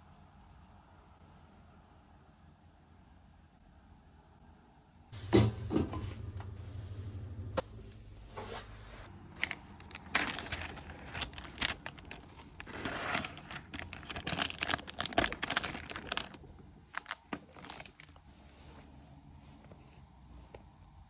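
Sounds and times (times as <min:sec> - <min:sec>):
plastic film crinkling and tearing: 0:09.3 - 0:18.3.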